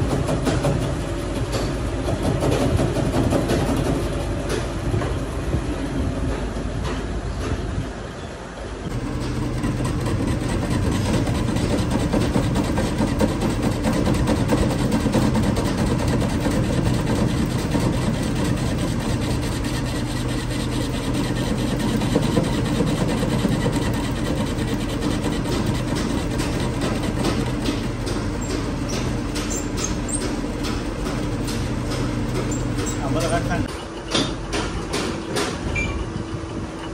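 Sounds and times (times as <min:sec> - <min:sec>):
motor humming: 0:08.9 - 0:33.7.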